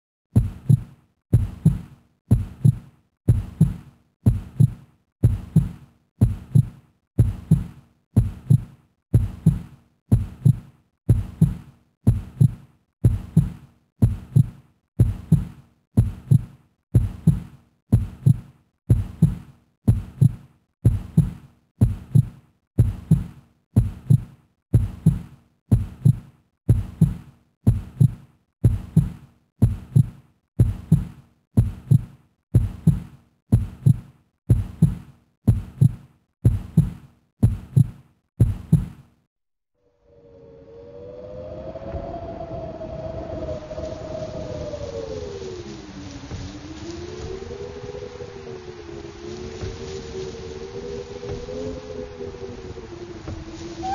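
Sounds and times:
heartbeat double thump: 0.3 - 39.0.

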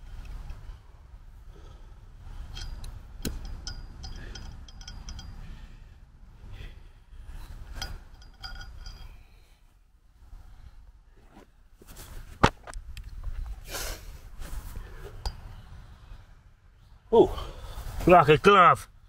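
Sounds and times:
low wind rumble: 0.0 - 19.0
metal clinks against steel post: 2.4 - 5.7, 7.3 - 9.4.

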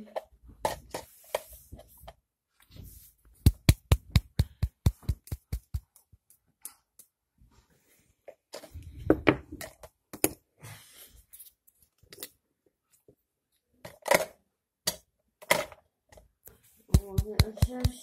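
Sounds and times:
markers clicking on tabletop: 16.9 - 18.0.

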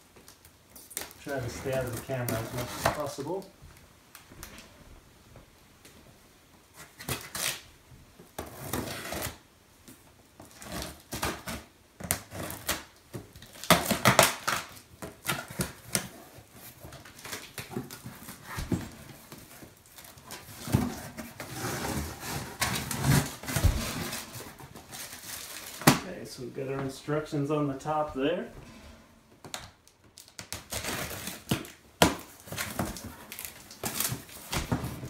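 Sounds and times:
cardboard box being cut open: 20.6 - 26.0.

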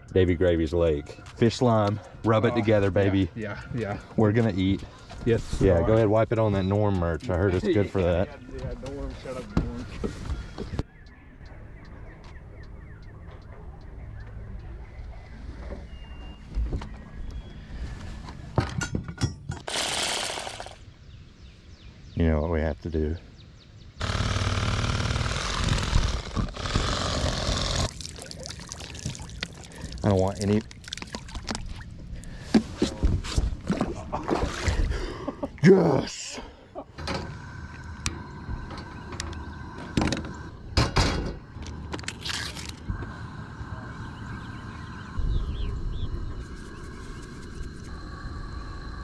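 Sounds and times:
electric knife motor buzzing: 19.7 - 20.8, 24.0 - 27.9
gas stove burner hissing: 42.8 - 49.0.

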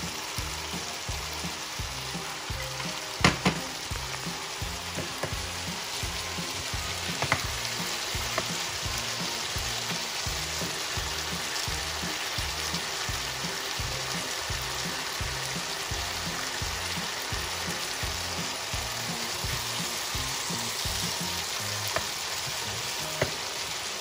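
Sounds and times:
background music with low beat: 0.0 - 23.4
vegetables sizzling in a skillet: 0.0 - 24.0
wooden spoon knocking on pan: 2.8 - 3.8, 4.8 - 5.6, 7.0 - 8.7, 23.1 - 23.4.

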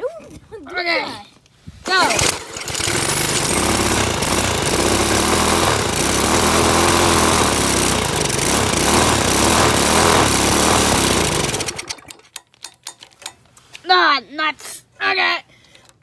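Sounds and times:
power drill whirring: 1.9 - 12.1
small engine turning over: 1.9 - 12.3.

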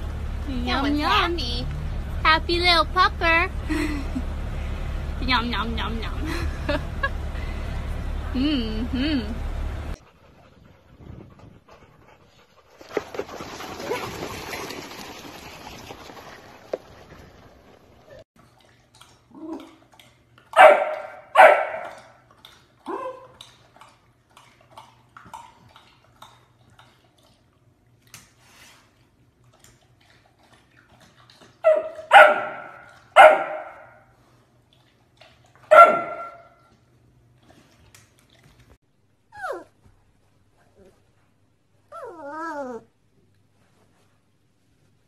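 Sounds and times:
dog barking: 20.6 - 22.1, 31.6 - 34.0, 35.7 - 36.6
dog whining: 39.3 - 39.8, 41.9 - 42.9.

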